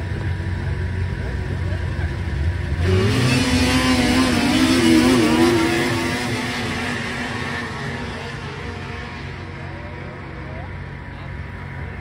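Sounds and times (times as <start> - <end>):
snowmobile engines at full throttle: 0.0 - 12.0.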